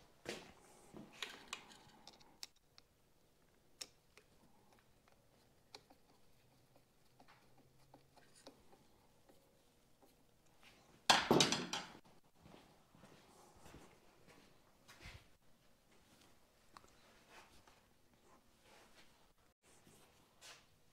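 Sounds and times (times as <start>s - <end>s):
faint clicks and light taps: 15.9s - 18.2s.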